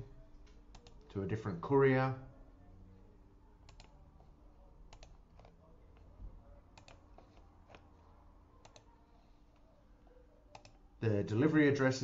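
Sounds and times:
computer mouse clicks: 0.5 - 1.1, 3.7 - 4.0, 4.9 - 6.1, 6.8 - 7.9, 8.6 - 8.9, 10.5 - 10.8.

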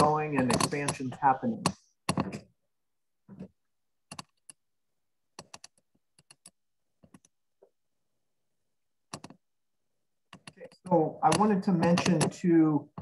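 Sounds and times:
typing on computer keyboard: 4.1 - 4.6, 5.4 - 7.3, 9.1 - 9.4, 10.3 - 12.4.

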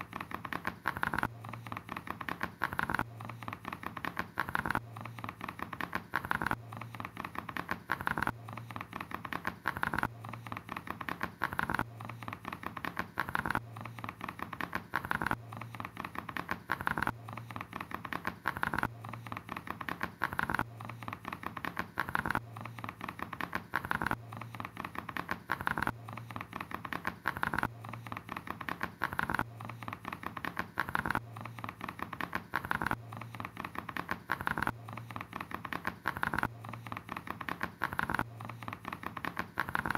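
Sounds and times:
rapid clicking and pattering: 0.0 - 39.9.

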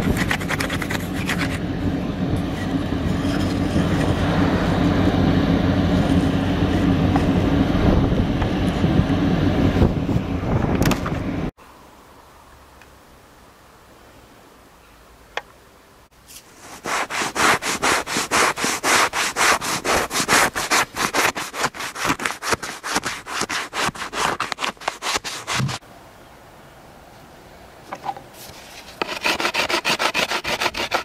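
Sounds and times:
scraper scraping animal hide: 0.0 - 1.6, 16.3 - 25.8, 28.4 - 31.0.

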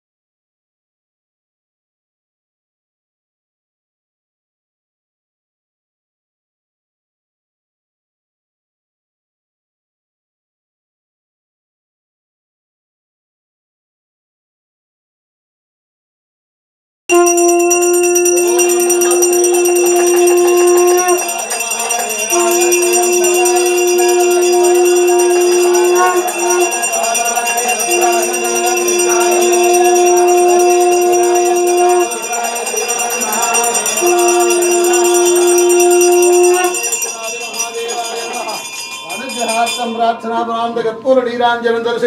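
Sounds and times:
conch blasts: 17.1 - 37.6
temple bells ringing: 17.1 - 40.5.

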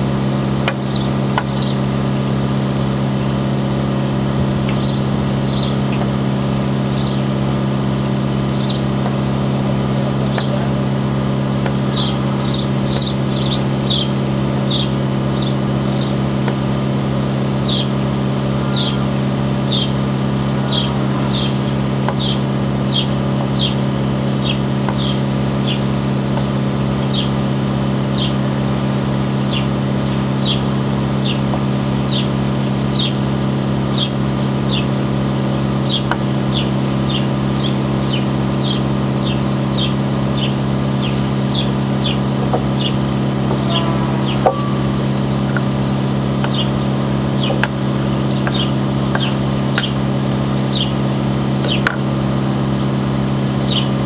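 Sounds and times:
mechanical hum: 0.0 - 54.0
bird chirping: 0.8 - 1.8, 4.7 - 5.8, 6.9 - 7.2, 8.5 - 8.8, 11.8 - 16.2, 17.6 - 19.0, 19.6 - 20.0, 20.6 - 23.8, 24.4 - 25.8, 29.4 - 31.4, 35.8 - 47.6, 48.3 - 50.0, 50.7 - 51.0, 53.6 - 54.0.

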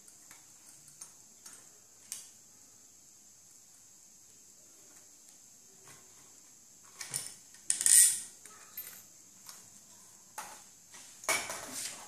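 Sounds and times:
metal parts clinking and scraping: 7.1 - 9.1.

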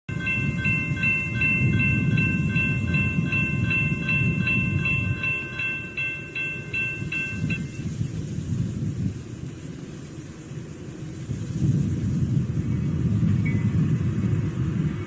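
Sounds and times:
crossing bell ringing: 0.1 - 8.0.

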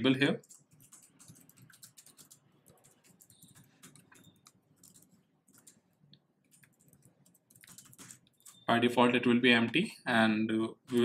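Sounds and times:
keyboard typing: 0.2 - 8.7.

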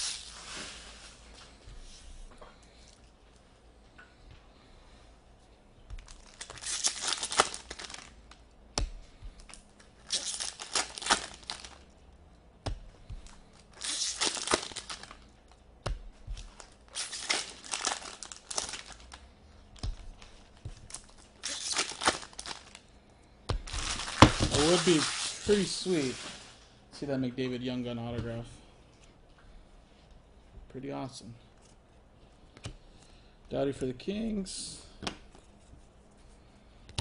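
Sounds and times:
foil wrappers tearing and crinkling: 0.0 - 0.7, 6.0 - 8.3, 9.4 - 11.9, 13.4 - 15.6, 16.3 - 19.2, 19.8 - 22.8, 23.7 - 26.5.

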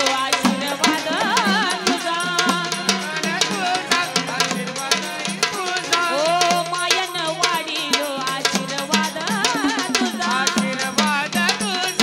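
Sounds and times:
fast drum beats: 0.0 - 12.0
percussion: 0.0 - 12.0
person singing folk song: 0.0 - 12.0.

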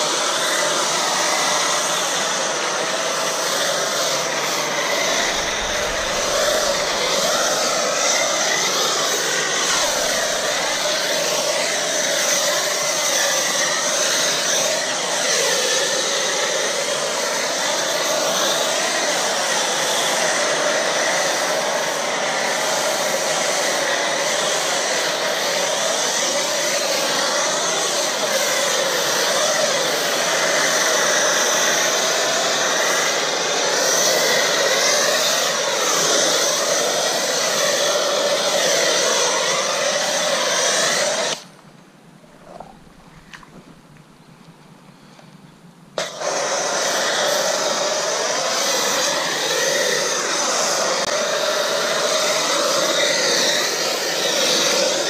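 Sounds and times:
pressure washer spraying: 0.0 - 41.5, 42.3 - 44.1, 46.0 - 55.0.

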